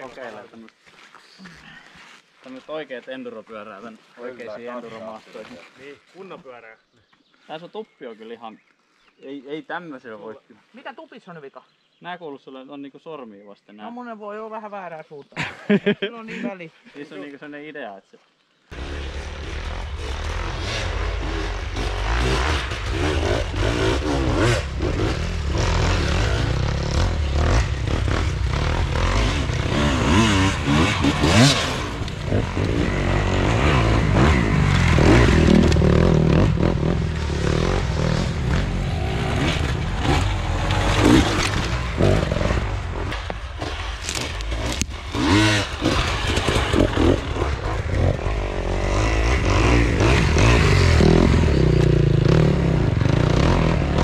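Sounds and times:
dirt bike engine revving: 18.7 - 54.0
bike clattering and scraping: 18.8 - 52.3.

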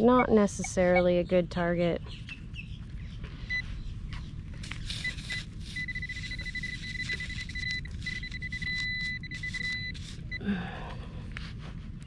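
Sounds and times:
metal detector beeping: 0.0 - 1.2, 4.6 - 10.5.

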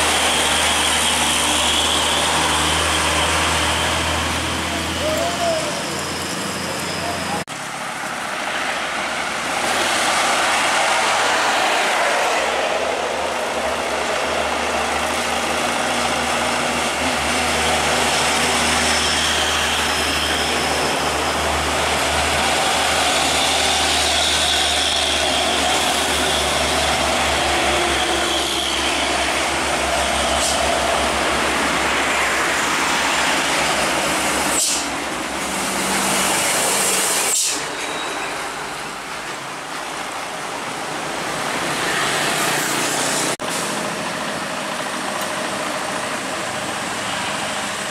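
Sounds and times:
cars passing: 0.0 - 47.9
diesel trucks climbing: 0.0 - 47.9
motorbikes passing: 8.1 - 34.1.

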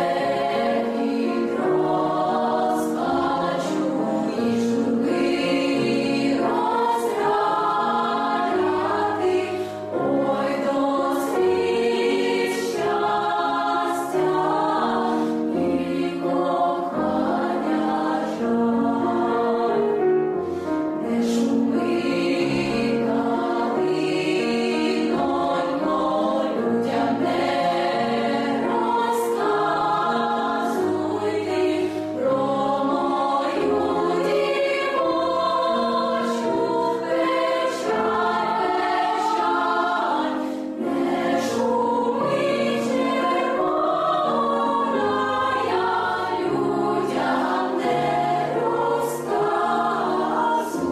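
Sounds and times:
girls' choir singing in harmony: 0.0 - 50.9.

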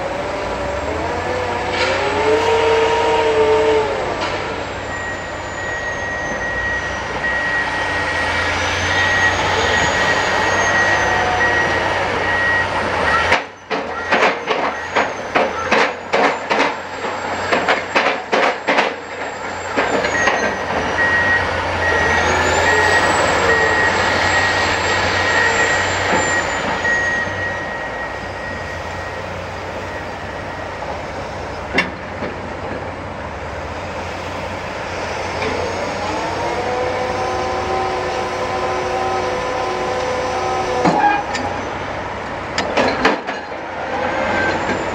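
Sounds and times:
diesel machinery running: 0.0 - 44.9
reversing alarm beeping: 4.2 - 31.8.

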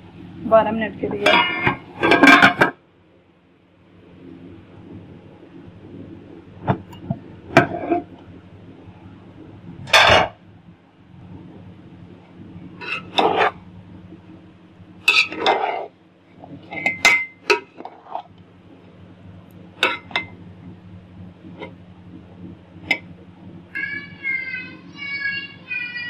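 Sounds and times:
faint steady hum: 0.0 - 26.0
spoon scraping metal pot: 12.8 - 13.6, 15.1 - 15.9.

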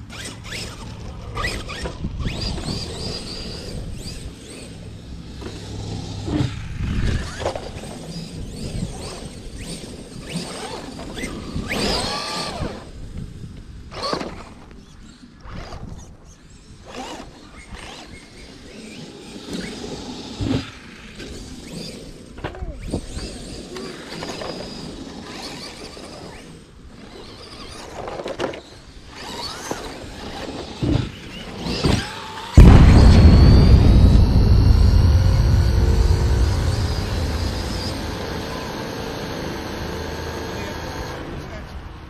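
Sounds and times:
electric toy car motor whine: 0.0 - 32.6.

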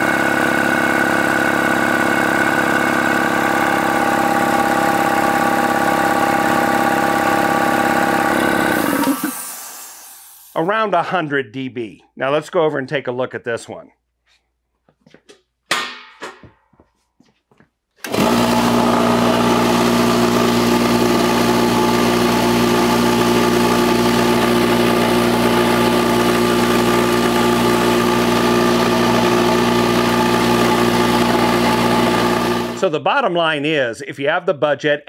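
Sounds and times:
air compressor running loudly: 0.0 - 10.6, 18.0 - 32.9.

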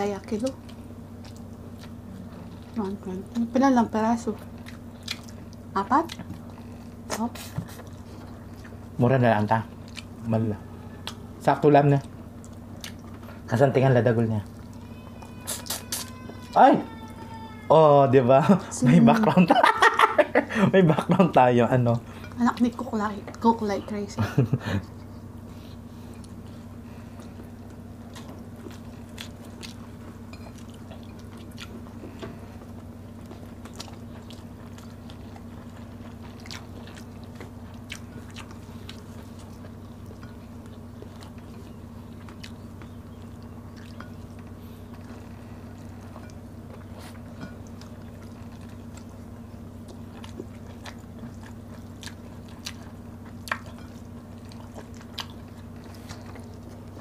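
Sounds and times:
steady low hum: 0.0 - 57.0
chewing and lip smacking: 0.5 - 3.4, 4.4 - 9.0, 9.8 - 10.2, 10.9 - 13.5, 14.3 - 16.3, 24.9 - 57.0.

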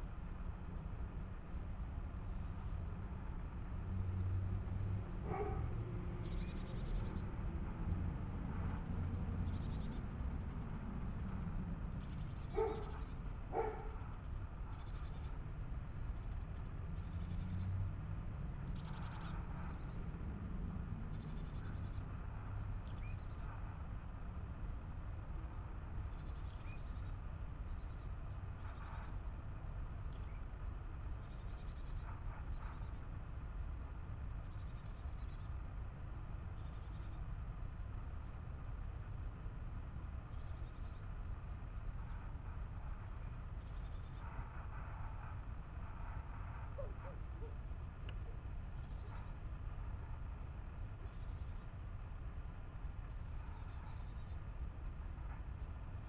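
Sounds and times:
steady low rumble: 0.0 - 56.0
birds chirping: 1.6 - 35.7, 39.5 - 56.0
louder lower bird calls: 18.7 - 20.2, 26.0 - 29.4, 42.0 - 54.4.

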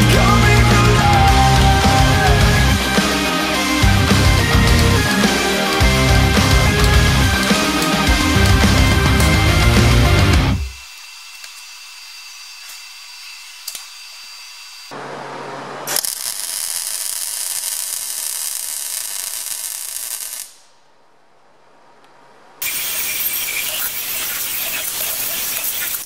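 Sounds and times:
low hum: 0.0 - 10.8
welding arc crackling: 0.0 - 15.0, 15.9 - 20.7, 22.6 - 26.0.

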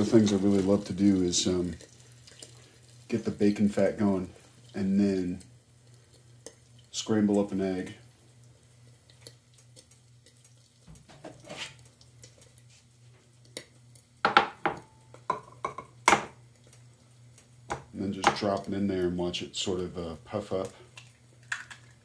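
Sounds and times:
kitchenware clinking and knocking: 14.3 - 16.4.

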